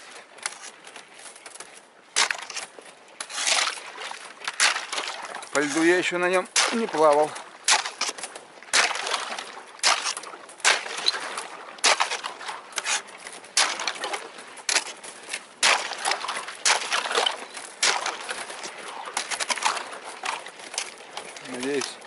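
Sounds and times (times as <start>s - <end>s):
thin ice cracking and crunching: 2.2s - 13.0s.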